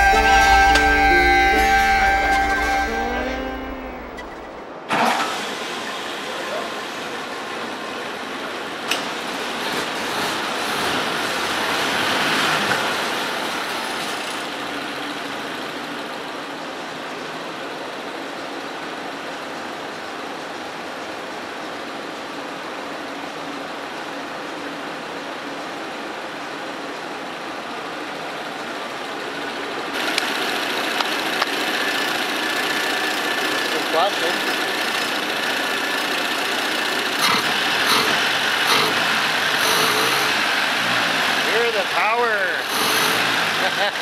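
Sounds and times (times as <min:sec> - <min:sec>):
car engine idling: 0:00.0 - 0:04.9, 0:23.1 - 0:44.0.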